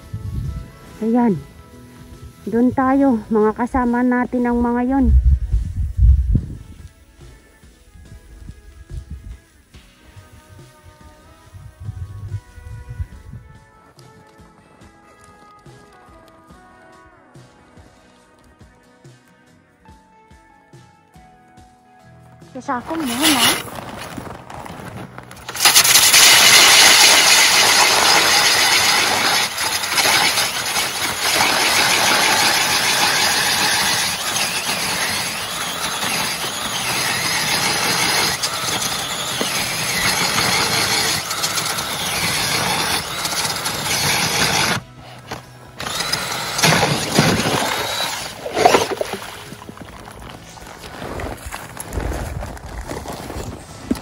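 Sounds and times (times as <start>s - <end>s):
ice auger grinding through ice: 22.8s - 54.0s.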